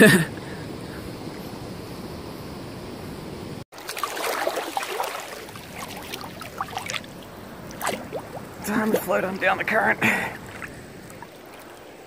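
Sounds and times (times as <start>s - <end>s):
water lapping and splashing: 3.7s - 12.0s
river water rushing: 3.8s - 12.0s.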